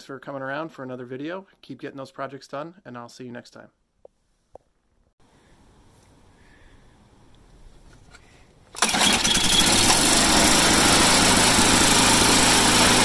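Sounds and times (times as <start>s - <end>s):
snowblower engine starting and running: 8.8s - 13.0s.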